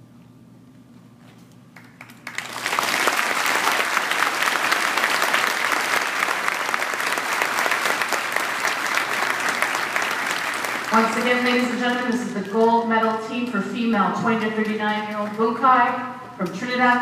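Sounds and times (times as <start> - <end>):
audience applauding: 1.8 - 12.1.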